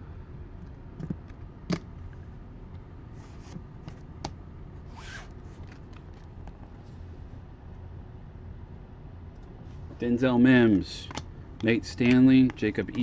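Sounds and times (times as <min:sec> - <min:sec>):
cards sliding rustle: 0:03.1 - 0:04.1, 0:04.8 - 0:06.7.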